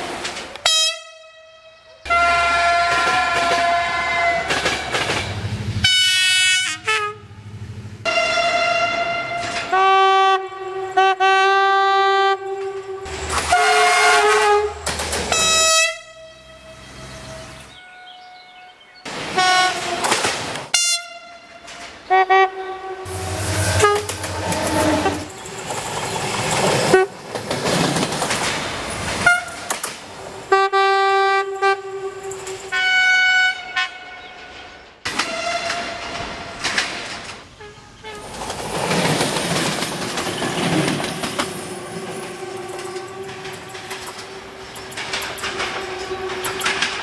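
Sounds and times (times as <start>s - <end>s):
trains running on rails: 0.0s - 47.0s
diesel train horn blasts: 0.6s - 25.4s, 26.9s - 27.1s, 29.2s - 29.7s, 30.5s - 34.5s, 35.1s - 36.2s, 37.5s - 38.3s, 42.0s - 47.0s.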